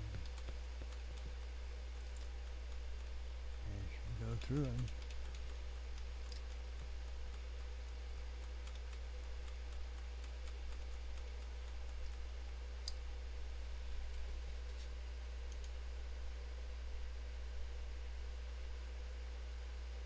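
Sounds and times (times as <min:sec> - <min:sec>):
computer mouse clicking: 0:00.0 - 0:03.2, 0:04.3 - 0:13.0, 0:15.5 - 0:15.8
low hum: 0:00.0 - 0:20.0.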